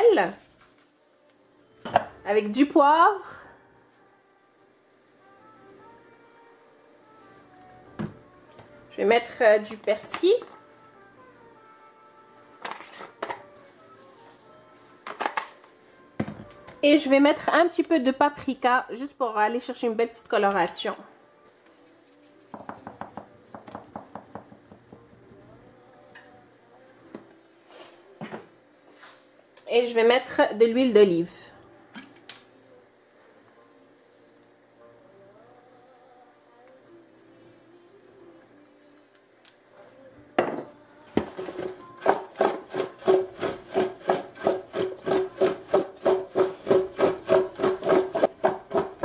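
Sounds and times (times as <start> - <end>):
shaker jar tapping: 22.5 - 24.8, 41.2 - 49.0
potatoes tumbling in metal bowl: 41.2 - 49.0.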